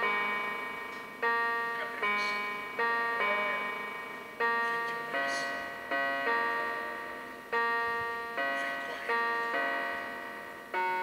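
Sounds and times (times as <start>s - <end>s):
bell-like keyboard chords: 0.0s - 11.0s.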